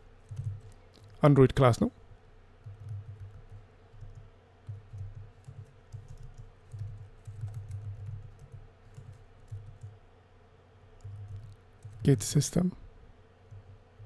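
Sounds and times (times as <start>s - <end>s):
keyboard typing clicks: 0.2s - 1.2s, 2.6s - 10.0s, 11.0s - 12.2s.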